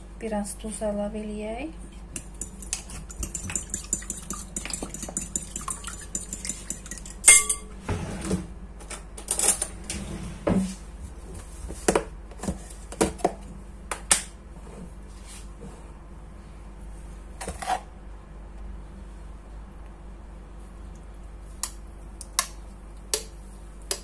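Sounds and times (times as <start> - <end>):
fork whisking eggs in glass bowl: 2.1 - 7.5
fork clinking on glass: 2.2 - 7.7
spoon and containers clinking: 2.2 - 7.7.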